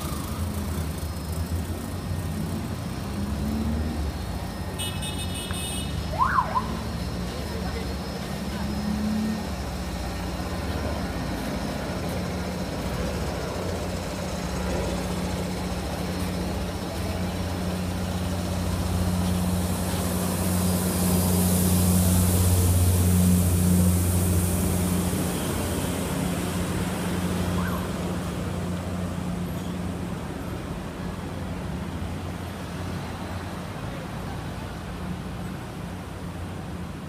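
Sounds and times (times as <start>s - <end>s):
electric road train drone: 0.0s - 37.0s
hiss: 7.1s - 28.8s.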